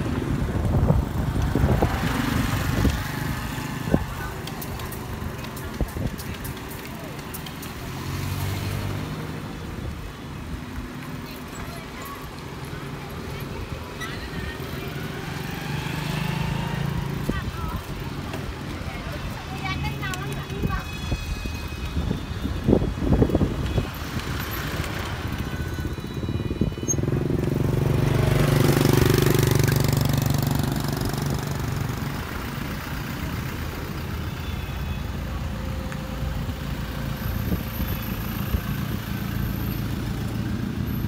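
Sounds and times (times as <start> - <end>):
vehicle passing: 14.2 - 20.7, 27.1 - 34.2.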